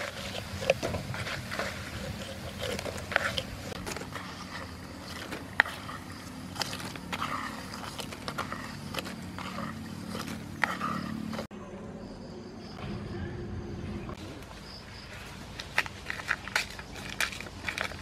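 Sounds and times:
rustles of crisp fried slices: 0.0 - 11.5
wooden spatula scraping metal wok: 0.0 - 11.5.

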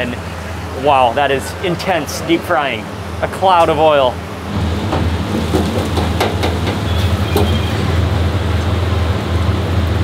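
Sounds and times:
low machine hum: 0.0 - 10.0
oil bubbling and sizzling in fryer: 4.1 - 10.0.

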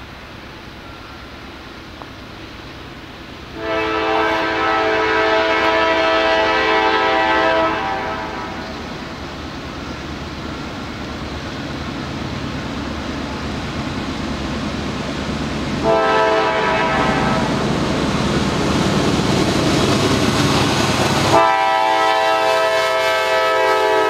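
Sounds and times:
diesel locomotive rumble: 0.0 - 24.0
locomotive air horn blast: 3.5 - 8.9, 15.8 - 17.6, 21.3 - 24.0.

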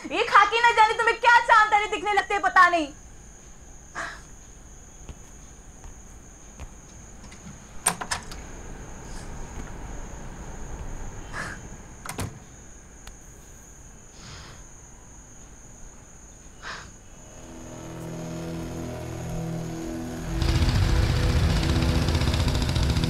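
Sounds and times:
high-pitched chirr: 17.2 - 22.6
low rumble: 17.2 - 23.0.

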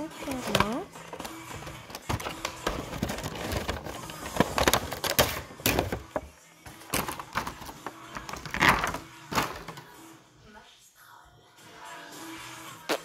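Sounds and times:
cardboard and plastic packaging crackling: 0.0 - 9.8.

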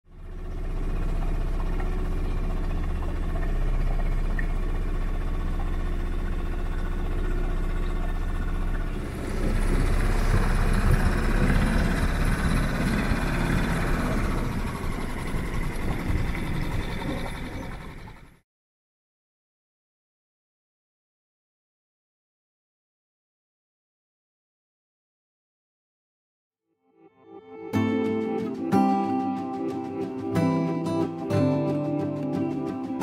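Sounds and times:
outboard motor running: 0.1 - 18.4.

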